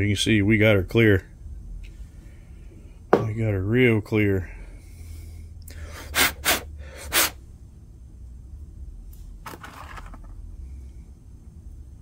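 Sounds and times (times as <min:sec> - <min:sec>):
low steady hum: 0:00.0 - 0:12.0
person's short sharp breaths: 0:04.6 - 0:07.4.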